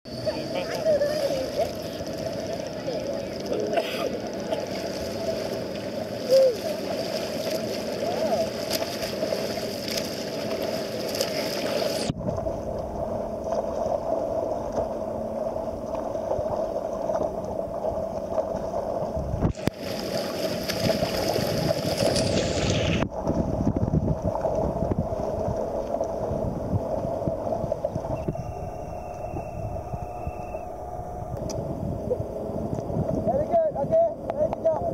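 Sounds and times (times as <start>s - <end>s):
water sloshing and splashing: 0.3s - 31.6s
swimming strokes splashing: 0.5s - 12.6s, 13.4s - 23.5s.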